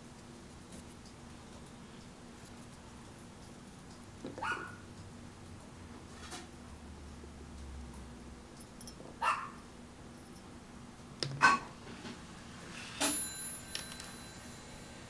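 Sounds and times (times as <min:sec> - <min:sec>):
dog yelping: 0:04.4 - 0:04.8, 0:09.2 - 0:09.6, 0:11.4 - 0:11.8
sharp sound with thin ringing: 0:12.8 - 0:15.0.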